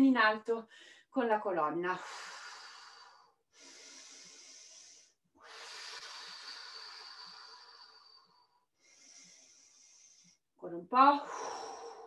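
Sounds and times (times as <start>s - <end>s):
woman breathing deeply: 2.0s - 10.6s, 11.2s - 12.0s.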